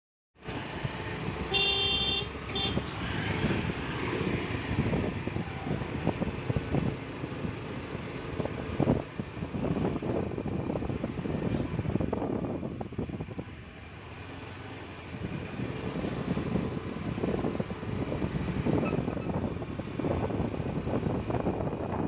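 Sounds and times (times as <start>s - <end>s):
vehicle road and wind noise: 0.4s - 22.0s
vehicle horn honking: 1.5s - 2.9s.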